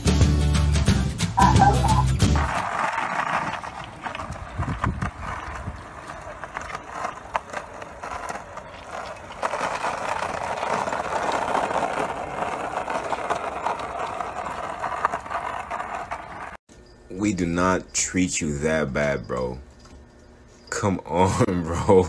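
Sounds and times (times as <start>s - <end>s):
skateboard wheels rolling on pavement: 0.0s - 22.0s
skateboard clicks and knocks: 1.4s - 16.6s.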